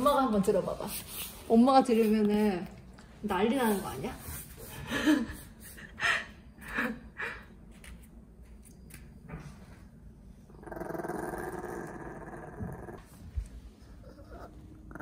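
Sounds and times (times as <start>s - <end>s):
dog growling: 10.5s - 13.1s, 13.9s - 15.0s.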